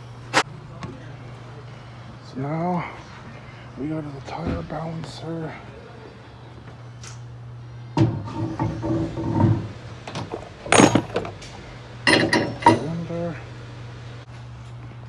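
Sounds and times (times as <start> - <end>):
steady low hum: 0.0 - 15.0
metal clamping nut clanks: 10.1 - 11.4, 12.1 - 13.0.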